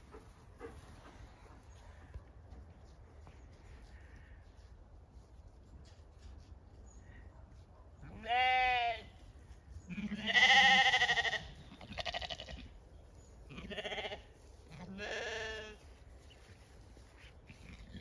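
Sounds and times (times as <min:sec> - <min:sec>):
sheep bleating: 0:08.2 - 0:09.1, 0:09.9 - 0:12.7, 0:13.5 - 0:15.8.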